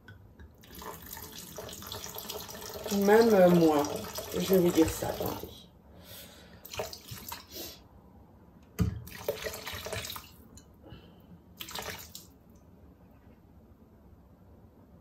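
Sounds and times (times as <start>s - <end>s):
wine pouring into metal bowl: 0.6s - 5.6s.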